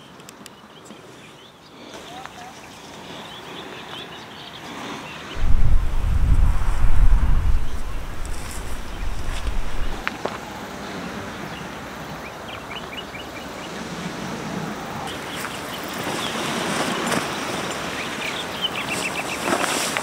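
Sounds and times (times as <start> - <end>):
steady outdoor rushing noise: 5.4 - 10.0.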